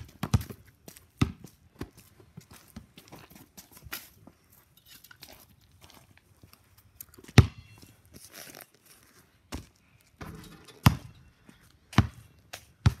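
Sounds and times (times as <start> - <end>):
basketball thudding: 10.2 - 11.2.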